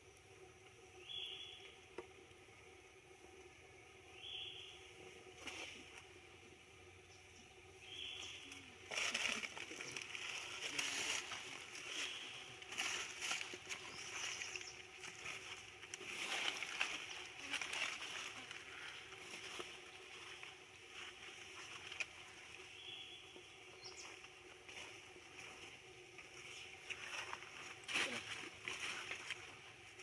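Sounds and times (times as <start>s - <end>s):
rustling in dry leaves: 7.8s - 23.0s, 23.8s - 30.0s.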